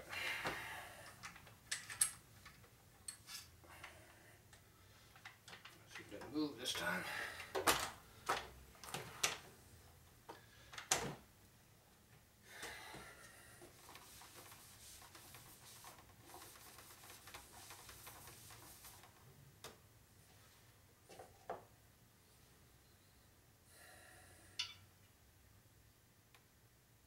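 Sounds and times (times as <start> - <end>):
hands rustling on a rag: 13.7 - 19.2.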